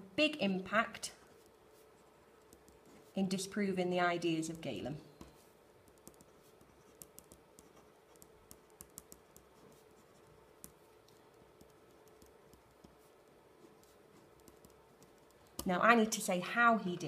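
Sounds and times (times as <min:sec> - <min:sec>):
ballpoint pen writing on paper: 0:05.2 - 0:15.4.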